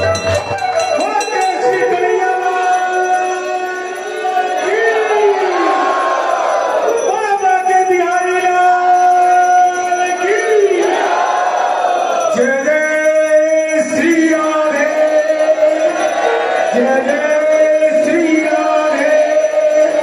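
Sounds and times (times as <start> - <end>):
musical accompaniment: 0.0 - 2.8
man singing slow melody: 12.4 - 20.0.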